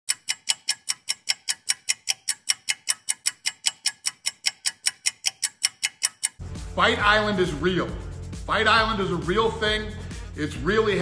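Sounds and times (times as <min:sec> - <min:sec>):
fast clock ticking: 0:00.1 - 0:06.4.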